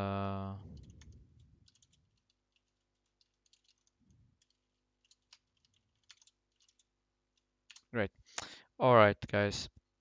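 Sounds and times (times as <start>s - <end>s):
faint keyboard typing: 0.6s - 8.0s.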